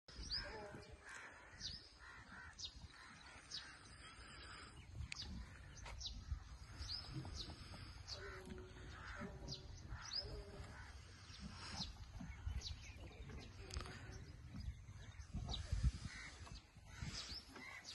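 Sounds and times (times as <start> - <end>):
birds calling: 0.1 - 17.9
harsh rough bird calls: 0.1 - 17.9.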